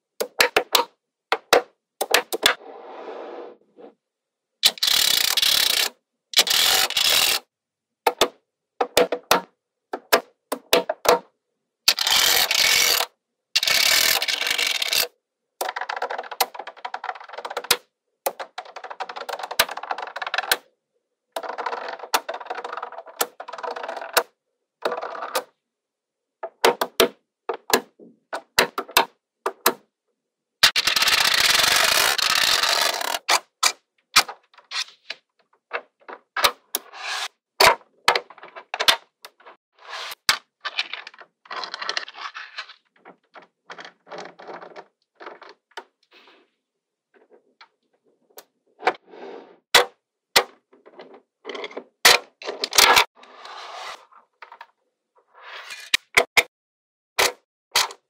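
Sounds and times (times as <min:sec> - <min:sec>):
plastic card scraping and rattling: 0:04.6 - 0:07.4, 0:11.9 - 0:20.6, 0:21.4 - 0:24.3, 0:30.6 - 0:46.4.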